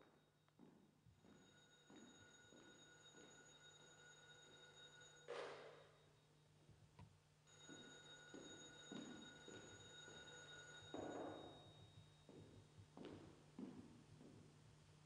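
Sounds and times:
soft footsteps: 0.0s - 3.3s, 11.8s - 14.6s
high electronic ringing tone: 7.5s - 12.2s.

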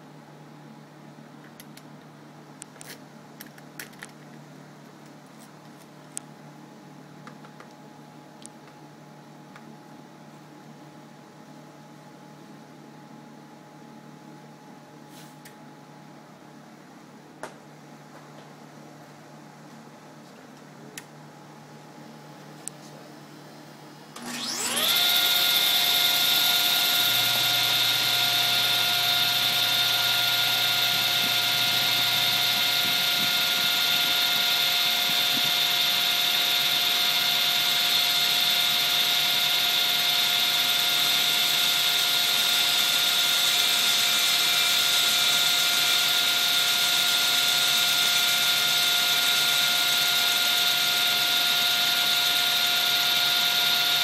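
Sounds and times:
table saw running: 24.2s - 54.0s.

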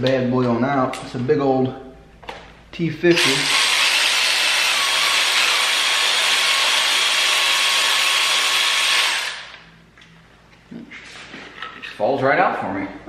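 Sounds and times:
cordless power tool running: 3.1s - 9.6s.

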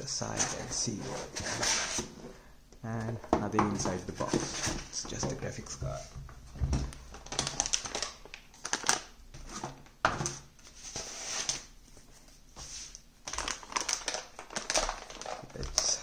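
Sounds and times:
packaging crinkling and rustling: 6.7s - 9.8s, 13.2s - 16.0s.

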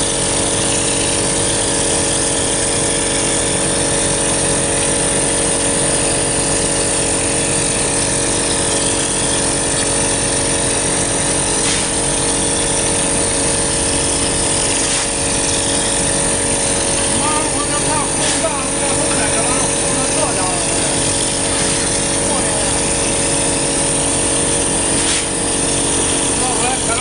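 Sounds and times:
machine drone: 0.0s - 27.0s
hiss of compressed air spraying: 11.4s - 13.1s, 13.9s - 26.3s.

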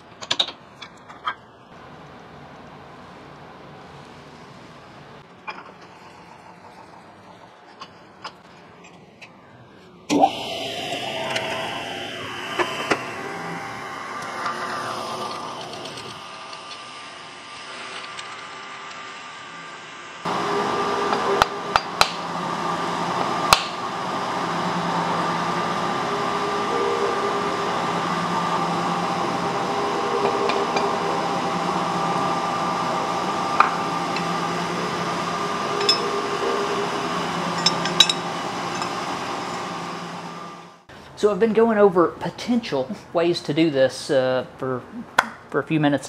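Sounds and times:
pulsing mechanical hum: 1.1s - 40.9s
steel tools clinking on vise: 35.8s - 36.1s, 37.6s - 39.0s.

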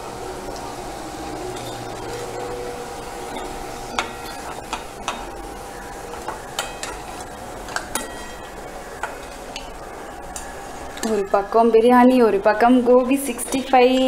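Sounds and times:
metal utensil clinking on pot: 1.6s - 1.9s, 6.6s - 8.5s.

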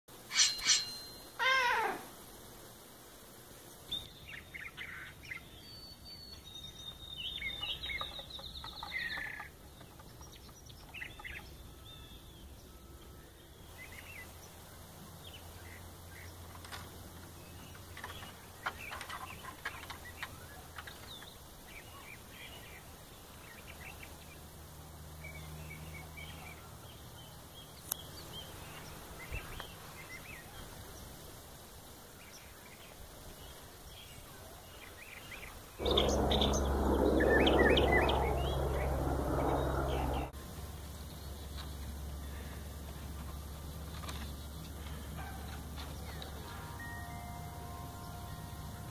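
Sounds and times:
birds chirping: 0.2s - 2.0s
faint low rumble: 35.8s - 40.7s.

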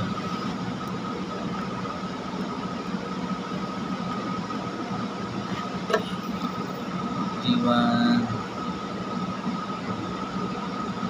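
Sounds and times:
faint high whine: 5.9s - 11.0s.

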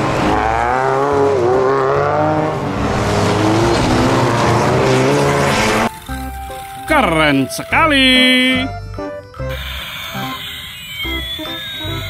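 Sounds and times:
racing engines revving: 0.0s - 5.9s.

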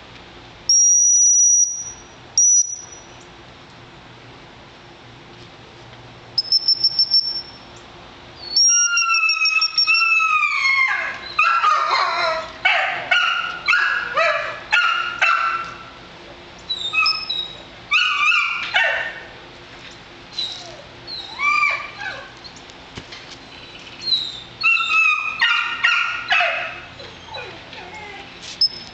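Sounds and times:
puppy whining and yelping: 8.4s - 12.6s, 16.7s - 19.0s, 20.3s - 22.6s, 24.0s - 28.8s.

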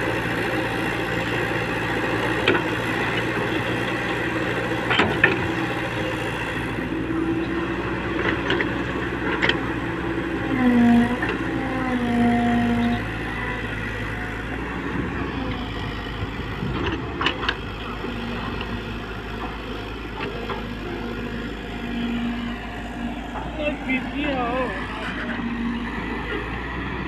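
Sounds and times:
excavator diesel engine running: 0.0s - 27.0s
hydraulic whine: 9.4s - 27.0s.

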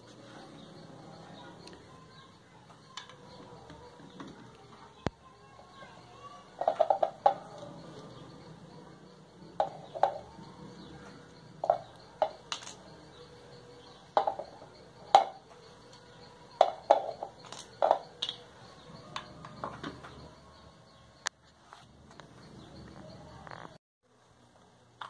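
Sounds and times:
plastic clicks and knocks: 14.2s - 14.6s, 16.6s - 18.4s.

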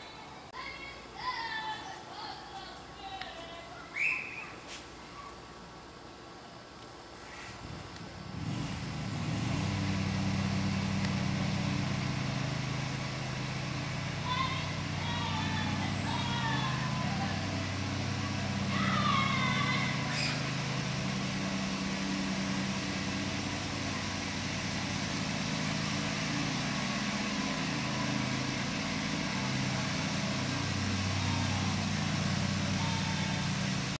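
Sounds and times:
bird calls: 3.8s - 5.4s, 14.3s - 20.8s
low engine drone: 7.5s - 34.0s.

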